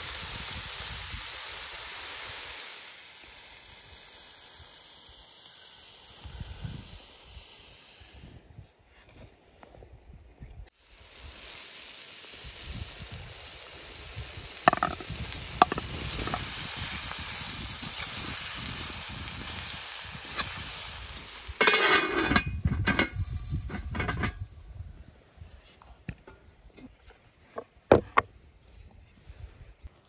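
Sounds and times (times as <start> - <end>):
vegetables sizzling in oil: 0.0 - 8.1, 10.7 - 24.2
metal skimmer scraping iron pot: 14.7 - 15.0, 21.6 - 24.4.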